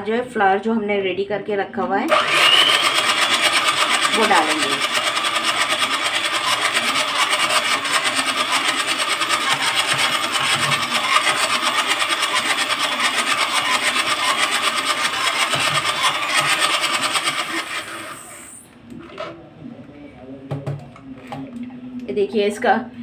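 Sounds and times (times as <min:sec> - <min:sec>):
electric hand mixer whirring: 0:02.1 - 0:18.7.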